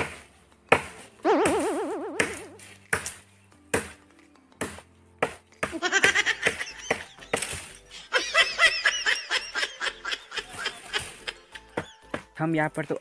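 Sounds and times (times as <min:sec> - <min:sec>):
axe chopping branch: 0:00.0 - 0:07.8.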